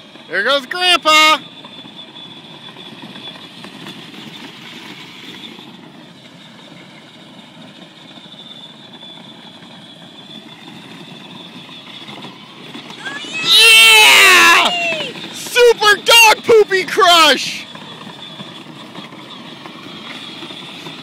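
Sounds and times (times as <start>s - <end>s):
electric toy motor whining: 0.0s - 21.0s
plastic wheels rolling on dirt: 0.0s - 21.0s.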